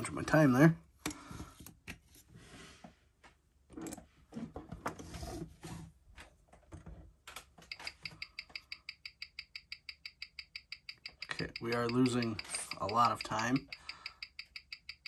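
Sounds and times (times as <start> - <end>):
watch ticking fast: 7.7 - 15.0.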